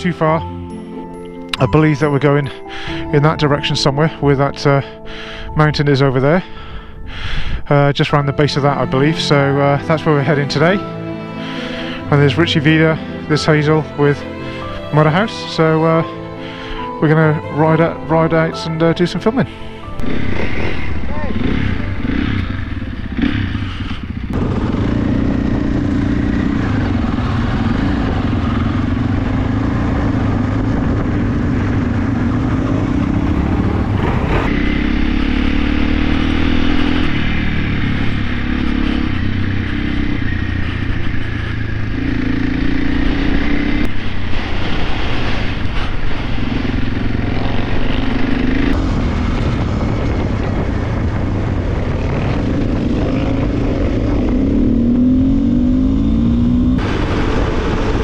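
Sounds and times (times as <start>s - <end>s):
dirt bike engine revving: 20.0s - 58.0s.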